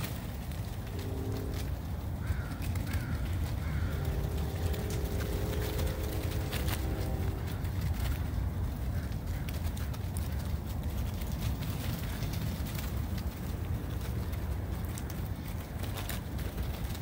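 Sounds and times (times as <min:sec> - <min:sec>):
crows cawing: 0:00.0 - 0:10.9
low rumble: 0:00.0 - 0:15.8
faint hum: 0:00.0 - 0:17.0.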